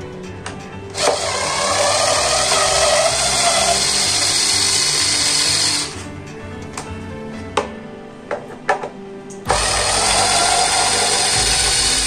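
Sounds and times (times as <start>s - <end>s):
electric screwdriver running: 1.0s - 6.0s, 9.5s - 12.0s.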